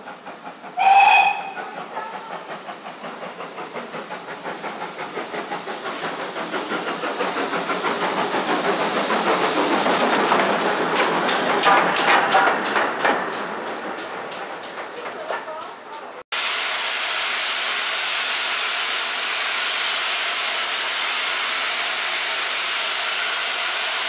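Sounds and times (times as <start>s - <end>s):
steam locomotive passing: 0.0s - 24.0s
wheels clanking over rail joints: 0.2s - 16.2s
steam locomotive whistle blast: 0.8s - 1.6s.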